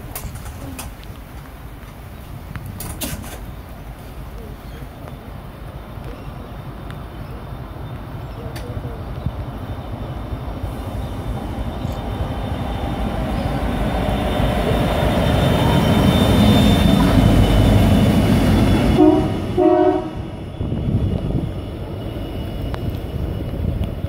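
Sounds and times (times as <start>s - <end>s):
diesel locomotive passing: 0.0s - 24.0s
locomotive horn blasts: 18.8s - 20.3s.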